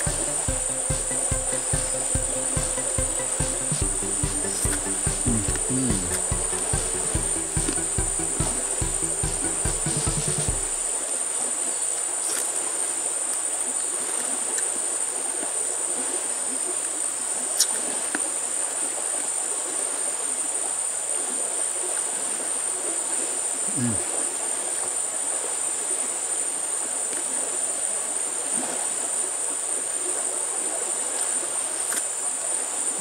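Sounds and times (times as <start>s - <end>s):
insects droning: 0.0s - 11.0s.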